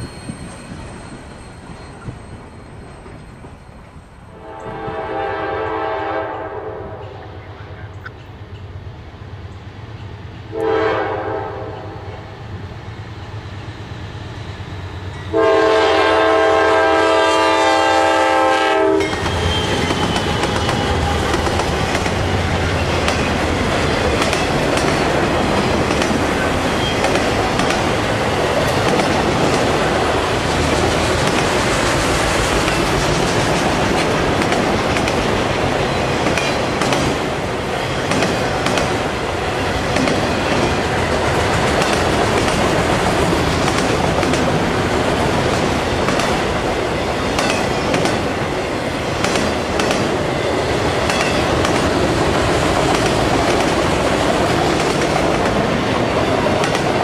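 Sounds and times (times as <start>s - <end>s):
diesel locomotives passing: 0.0s - 57.0s
locomotive air horn: 4.3s - 7.3s, 10.5s - 12.1s, 15.3s - 21.3s
train wheels clicking on rail: 18.8s - 57.0s.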